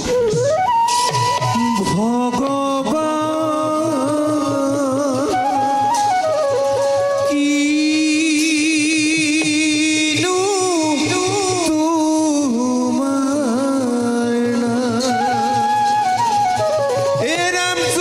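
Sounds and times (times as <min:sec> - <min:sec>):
steady drum beat: 0:00.0 - 0:05.3, 0:07.3 - 0:13.2
person singing wavering melody: 0:01.3 - 0:18.0.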